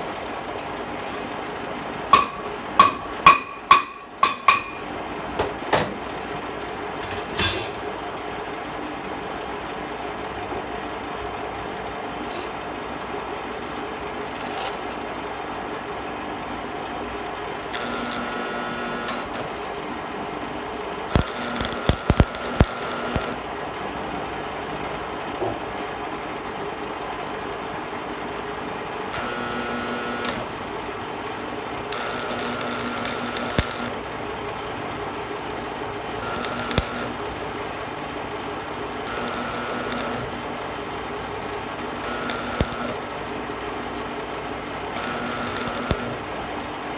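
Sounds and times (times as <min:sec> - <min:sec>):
stick welder humming: 0:01.0 - 0:06.2, 0:06.9 - 0:07.9, 0:17.6 - 0:19.6, 0:21.0 - 0:24.4, 0:28.4 - 0:46.7
welding arc crackle: 0:17.7 - 0:19.5, 0:21.0 - 0:23.5, 0:29.0 - 0:30.6, 0:31.8 - 0:35.4, 0:36.0 - 0:37.4, 0:38.3 - 0:40.9, 0:41.6 - 0:43.1, 0:44.9 - 0:46.3.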